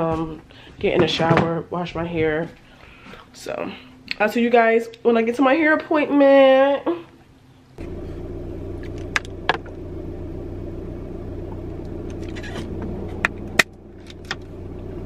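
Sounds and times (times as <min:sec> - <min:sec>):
car engine idling hum: 0:07.8 - 0:15.0.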